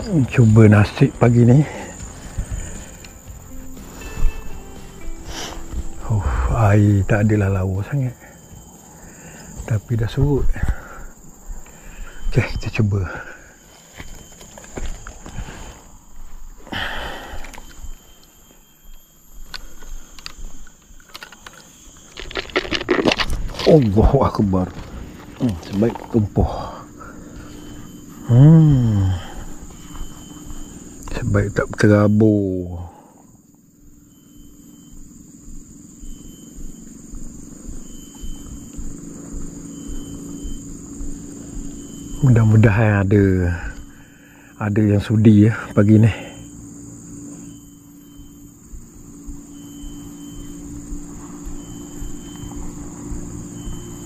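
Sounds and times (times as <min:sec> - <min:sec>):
insects chirring: 0:00.0 - 0:54.0
short high insect call: 0:00.0 - 0:54.0
rustle through vegetation: 0:13.6 - 0:16.6, 0:19.4 - 0:28.3
clicks and knocks of rod and reel: 0:19.4 - 0:23.9.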